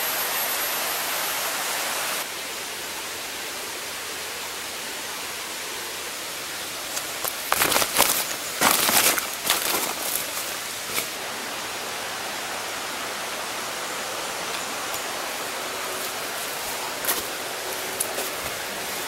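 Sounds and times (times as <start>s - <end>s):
river water rushing: 0.0s - 19.0s
footsteps crunching through dry leaves: 6.9s - 11.2s, 15.3s - 19.0s.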